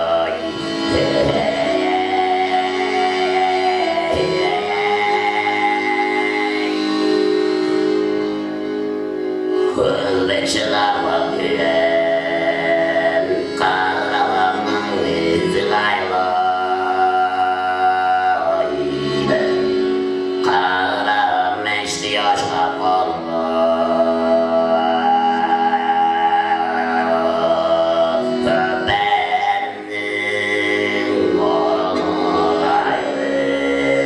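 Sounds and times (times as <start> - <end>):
button accordion chords: 0.0 - 34.0
man throat-singing: 9.8 - 34.0.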